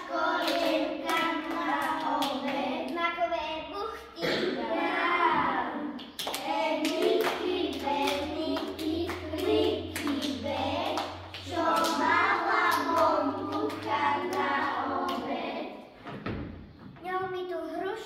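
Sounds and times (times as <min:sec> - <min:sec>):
children singing: 0:00.0 - 0:02.9, 0:04.2 - 0:15.9
hand clapping: 0:06.0 - 0:15.3.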